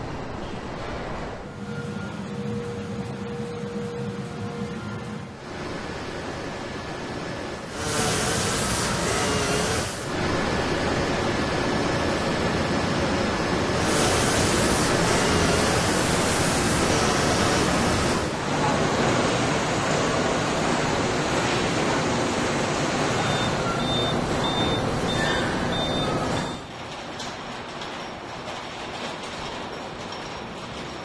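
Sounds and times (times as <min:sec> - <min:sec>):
chemical wash spray hissing: 0:07.7 - 0:10.1, 0:13.6 - 0:23.2
spray-paint booth hiss: 0:07.7 - 0:10.1, 0:13.7 - 0:18.3.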